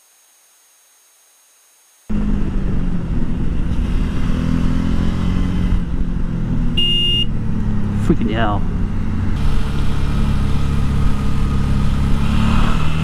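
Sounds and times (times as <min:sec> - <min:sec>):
faint hiss: 0:00.0 - 0:02.1
motorcycle engine running: 0:02.1 - 0:13.0.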